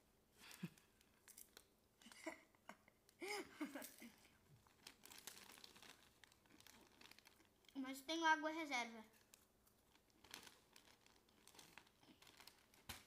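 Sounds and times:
plastic bag crinkling: 0.5 - 2.2, 3.7 - 8.1, 9.0 - 13.0.

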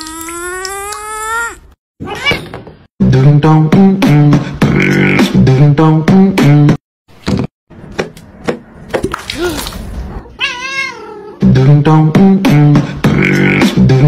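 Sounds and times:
cat meowing: 10.3 - 11.4.

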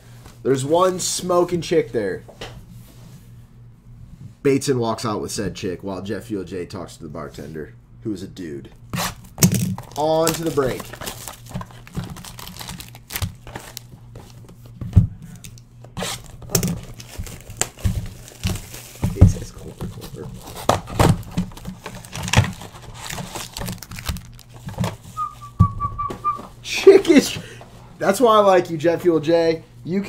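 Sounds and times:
low steady hum: 0.0 - 30.0
card packs being ripped open: 9.0 - 14.0, 15.4 - 24.9
whistled note: 25.2 - 26.5.

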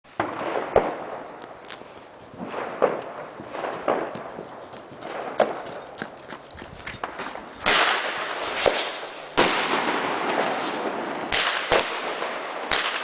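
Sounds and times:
faint crackling: 0.8 - 9.5
firecracker bangs: 2.4 - 5.8, 7.0 - 13.0.

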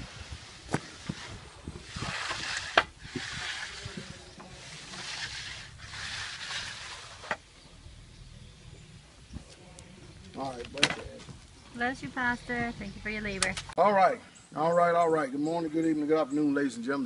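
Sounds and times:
concrete float scraping wet concrete: 0.0 - 7.5.

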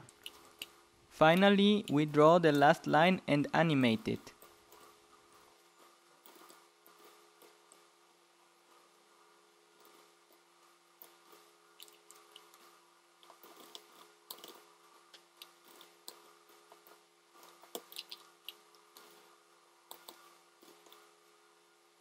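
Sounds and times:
low steady hum: 0.0 - 22.0
computer keys typing: 6.2 - 7.8, 13.2 - 14.7, 15.4 - 19.3, 19.9 - 21.1.

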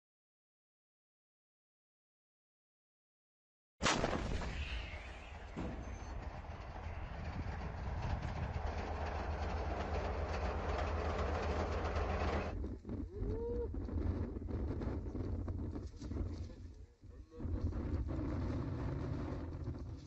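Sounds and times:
tank engine rumbling: 5.0 - 13.0.

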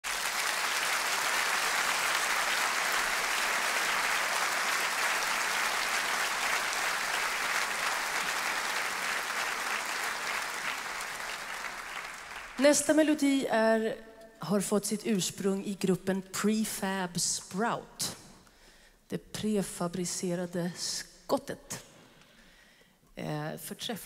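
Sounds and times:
audience applause: 0.0 - 12.8.

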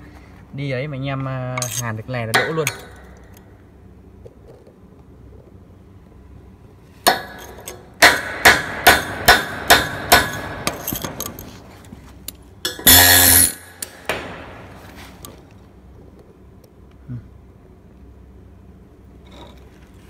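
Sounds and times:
hammer striking metal: 1.6 - 3.2, 7.1 - 11.4, 12.7 - 14.8.

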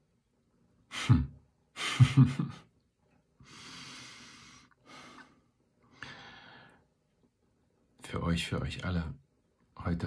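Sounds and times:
man breathing out: 3.4 - 6.8.

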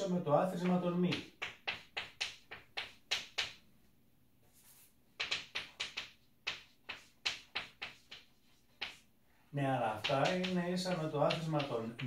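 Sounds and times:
chalk writing on blackboard: 4.4 - 9.1.

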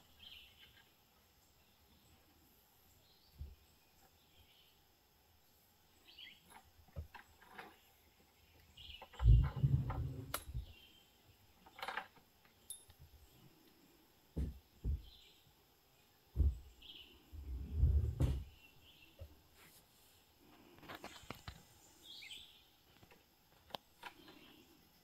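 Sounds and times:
faint bird chirps: 0.0 - 4.8, 21.0 - 23.0
rustles: 5.4 - 15.5, 16.3 - 25.0
low thumps: 9.2 - 10.7, 16.3 - 16.7, 17.4 - 18.5.

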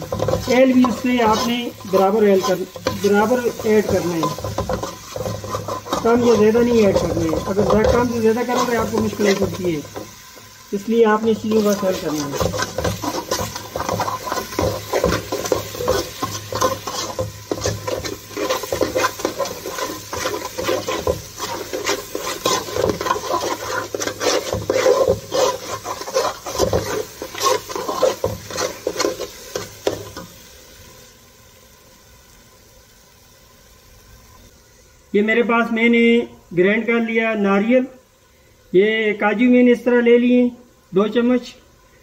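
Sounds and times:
metal spatula scraping a pot: 0.0 - 10.6, 11.2 - 30.4
faint steady hiss: 0.0 - 42.0.

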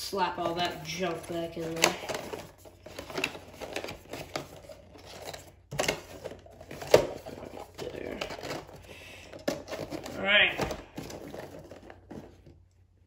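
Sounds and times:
cardboard rustling and scraping: 0.3 - 12.6.

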